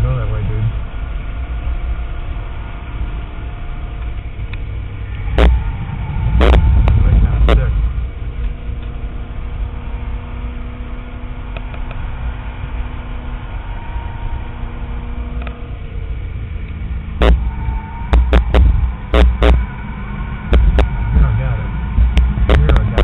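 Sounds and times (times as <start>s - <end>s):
car engine from inside cabin: 0.0s - 23.0s
loud thumps: 5.2s - 7.9s, 17.2s - 19.7s, 20.4s - 23.0s.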